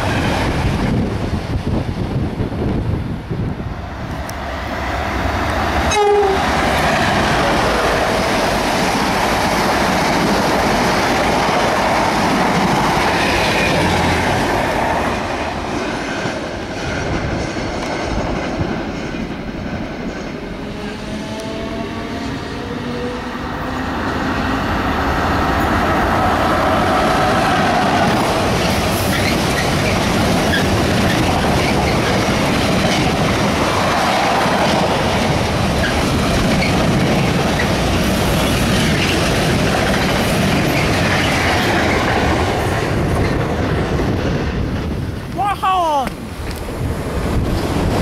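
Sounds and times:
electric locomotive whine: 0.0 - 45.4
train wheel and rail noise: 0.0 - 48.0
train horn toot: 5.9 - 6.6.

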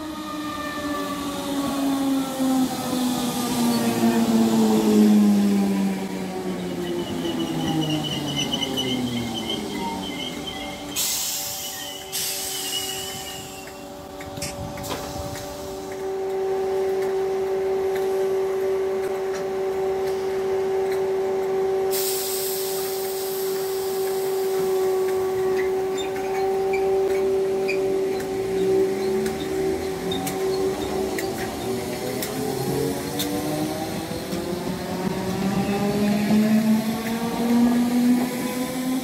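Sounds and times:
electric train hum: 0.0 - 39.0
rail noise: 0.0 - 39.0
hiss: 11.0 - 13.8, 21.9 - 24.9.

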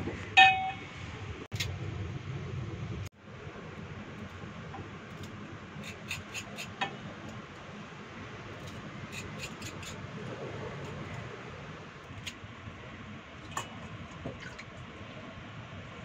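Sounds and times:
knife scraping fish: 5.2 - 6.8, 8.6 - 10.0.

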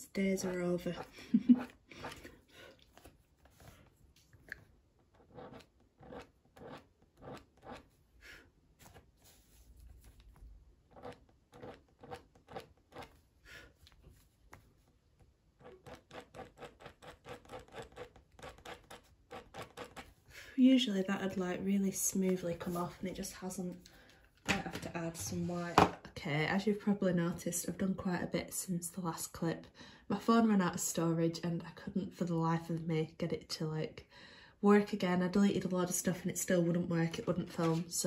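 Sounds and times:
blade scratching paper: 5.1 - 7.9, 10.9 - 13.2, 15.6 - 20.1.

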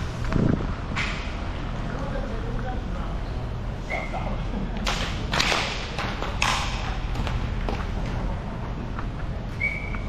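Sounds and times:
steady low hum: 0.0 - 10.0
stick hitting puck: 4.9 - 8.2.

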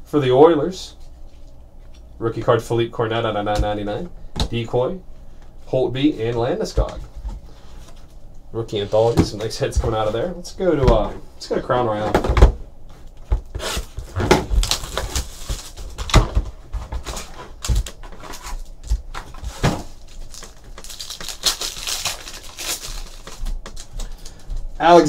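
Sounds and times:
foil pack crinkling and ripping: 13.4 - 24.4.

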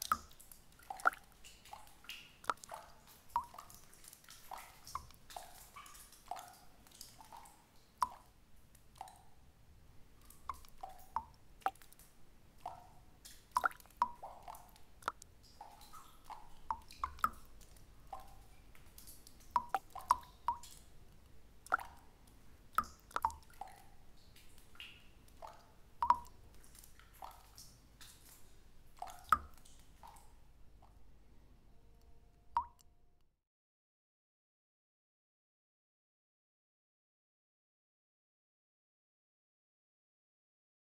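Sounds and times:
water drops plinking into pool: 0.0 - 8.3, 10.2 - 22.1, 22.8 - 28.4, 29.0 - 31.0, 32.6 - 32.9.

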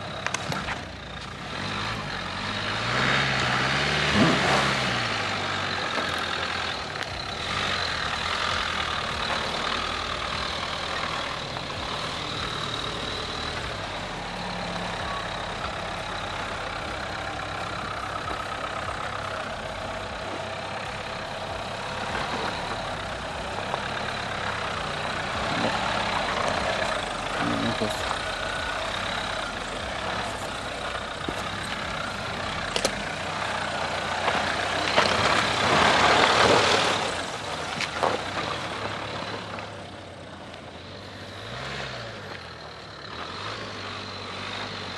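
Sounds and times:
car engines running at low speed: 0.0 - 44.9.

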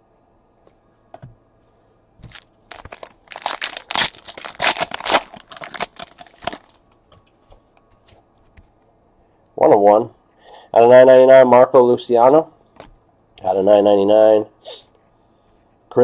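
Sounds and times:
foil wrapper tearing and crinkling: 2.2 - 6.8.

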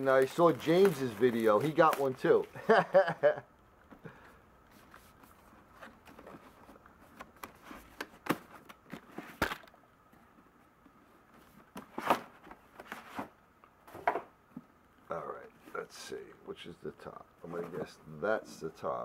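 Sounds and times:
paper sleeve rustling: 0.0 - 2.6.

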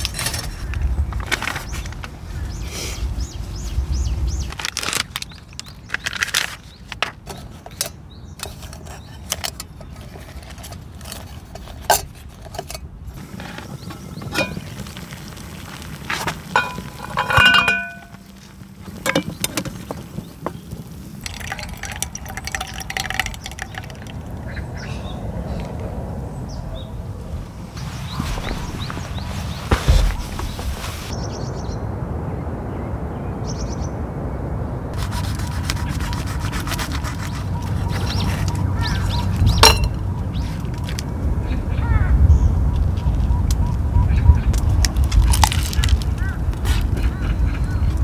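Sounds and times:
cookware clicks and knocks: 16.6 - 18.1, 39.6 - 40.0.

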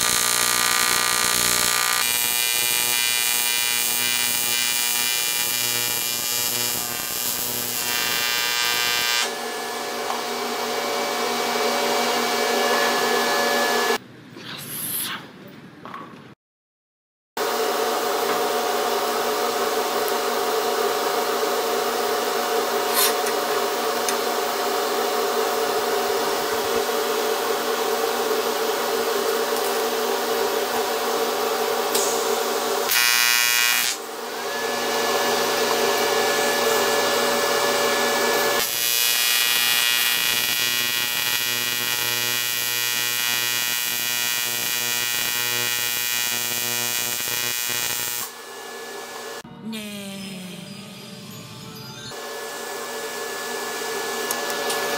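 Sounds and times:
welding arc buzzing: 0.0 - 14.0, 29.3 - 49.4.

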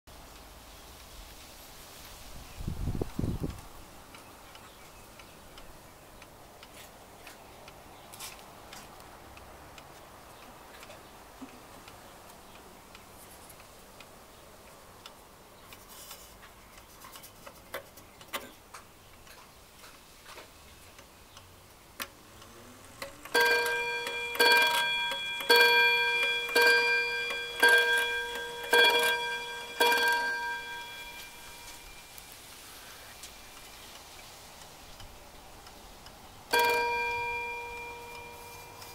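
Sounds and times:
wall clock ticking: 20.9 - 32.2, 35.6 - 38.9
clock striking ringing strokes: 23.0 - 32.2, 36.5 - 38.9.

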